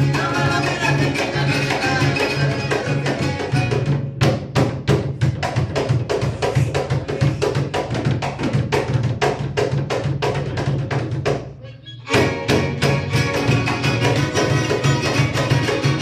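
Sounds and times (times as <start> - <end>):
mariachi music: 0.0 - 7.7, 11.4 - 16.0
hand beating harp soundbox: 12.1 - 16.0.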